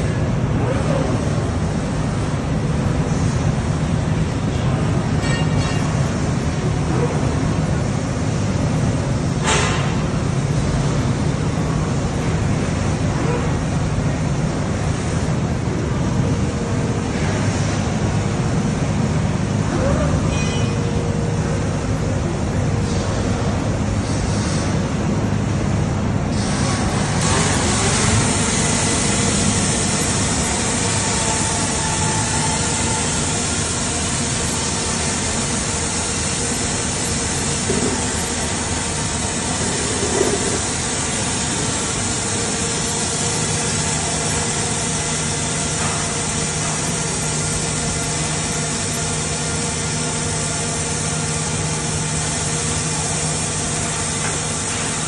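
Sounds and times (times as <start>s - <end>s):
arc welding hiss and crackle: 26.3s - 55.0s.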